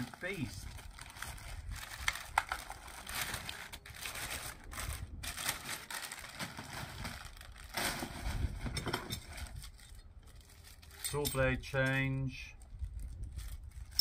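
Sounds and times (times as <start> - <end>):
plastic bag crinkling: 0.0 - 8.6, 9.3 - 11.0.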